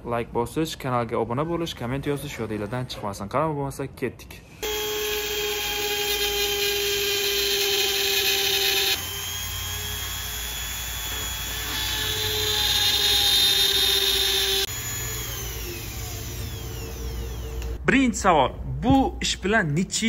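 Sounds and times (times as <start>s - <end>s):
rotary tool whining on glass: 4.6s - 17.8s.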